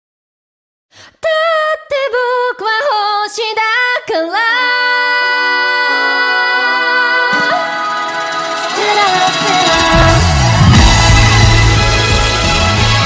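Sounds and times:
short breath: 0.9s - 1.2s
woman singing: 1.0s - 11.5s
sustained backing chords: 7.2s - 13.0s.

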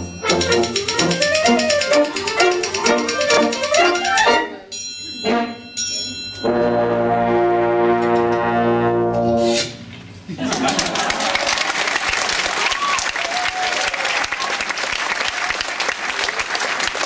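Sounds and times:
brass wind band playing: 0.0s - 4.7s, 6.4s - 9.9s.

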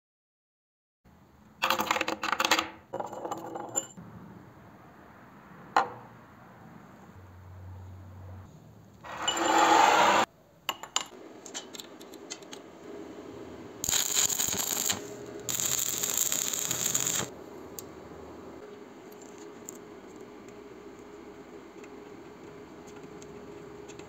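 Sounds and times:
welding arc crackling and hissing: 13.8s - 17.3s.

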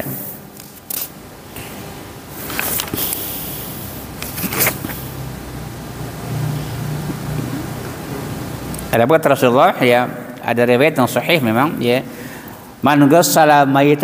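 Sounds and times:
book pages turning: 2.4s - 3.2s, 4.2s - 5.0s.

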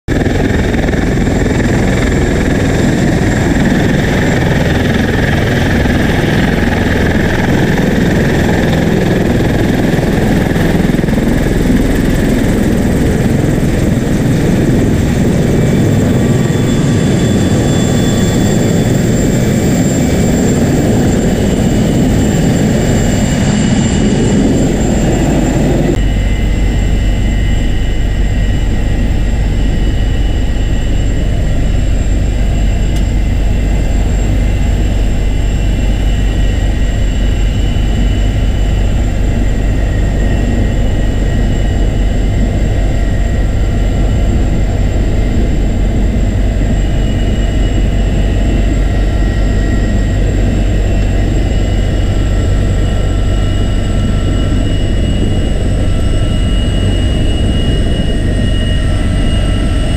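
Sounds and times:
helicopter heard from cockpit: 0.1s - 59.9s
helicopter rotor and engine noise: 0.1s - 59.9s.

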